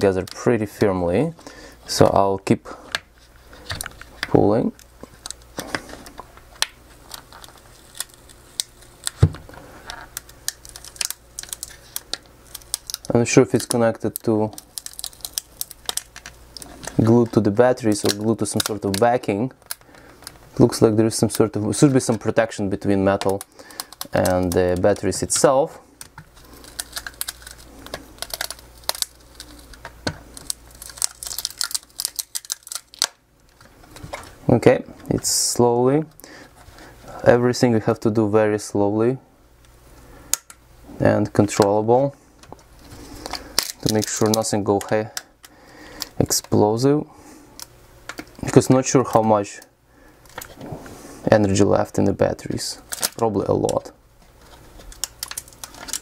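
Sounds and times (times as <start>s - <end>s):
plastic clips clicking and creaking: 3.6s - 20.4s, 23.1s - 34.3s, 52.9s - 56.0s
laptop battery cover crackling off: 26.0s - 33.2s.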